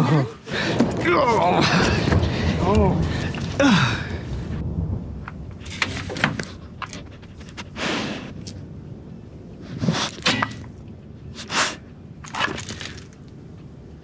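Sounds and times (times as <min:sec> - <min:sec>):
dog sniffing: 0:06.4 - 0:08.5, 0:09.7 - 0:10.5, 0:11.3 - 0:12.5.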